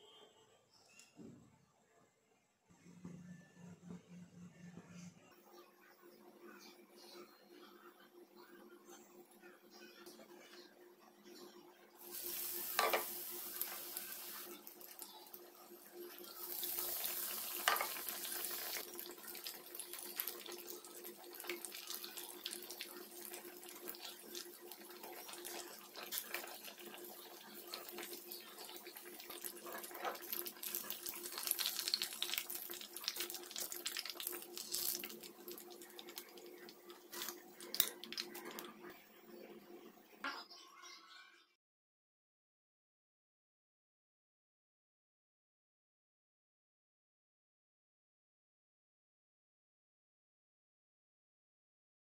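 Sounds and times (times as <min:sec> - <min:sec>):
frying in hot oil sizzle: 0:12.0 - 0:38.9.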